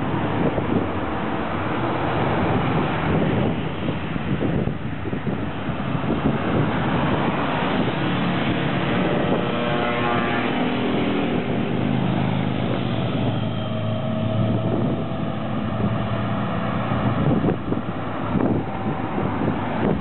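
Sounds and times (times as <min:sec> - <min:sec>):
wind buffeting microphone: 0:00.0 - 0:20.0
motorcycles riding past: 0:07.2 - 0:17.7.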